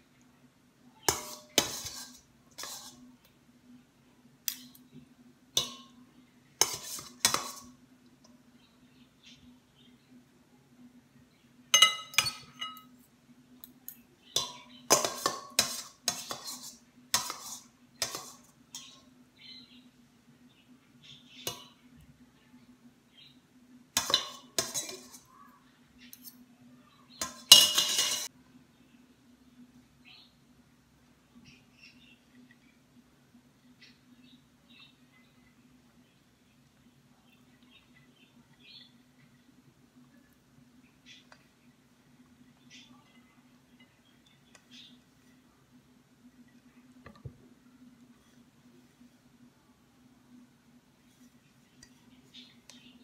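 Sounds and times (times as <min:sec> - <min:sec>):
spoon and fork scraping pot: 0:01.0 - 0:03.1, 0:06.6 - 0:07.8, 0:14.4 - 0:19.0, 0:24.0 - 0:25.3, 0:27.2 - 0:28.3.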